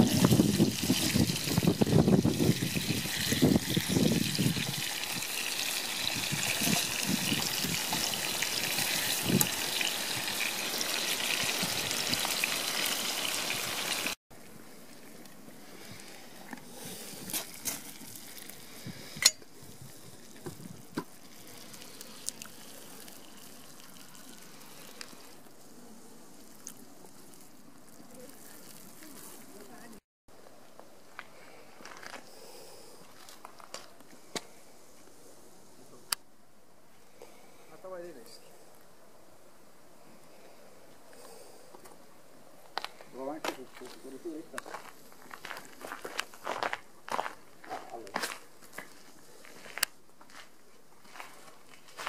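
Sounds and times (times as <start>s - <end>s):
steaks sizzling in a frying pan: 0.0s - 14.2s
faint hiss of wood stove: 36.8s - 46.7s.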